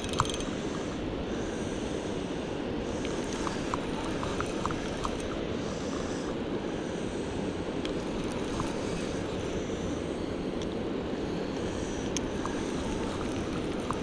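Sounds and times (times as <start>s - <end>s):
faint light ticks: 3.0s - 5.4s, 12.0s - 14.0s.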